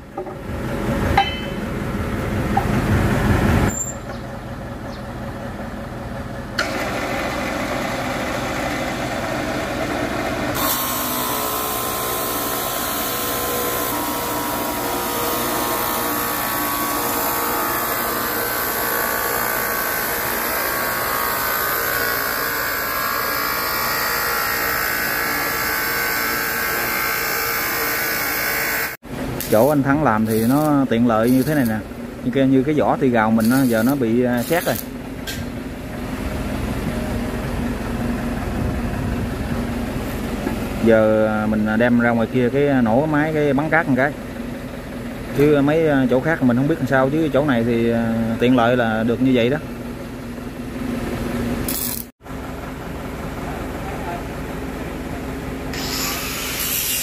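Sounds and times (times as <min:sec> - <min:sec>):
power saw cutting steel rod: 0:10.5 - 0:31.8, 0:33.3 - 0:35.4, 0:55.7 - 0:57.0.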